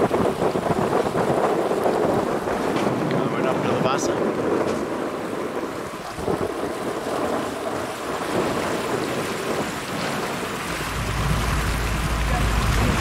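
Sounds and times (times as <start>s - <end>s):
rushing water: 0.0s - 13.0s
wind buffeting microphone: 0.0s - 13.0s
low engine drone: 10.6s - 13.0s.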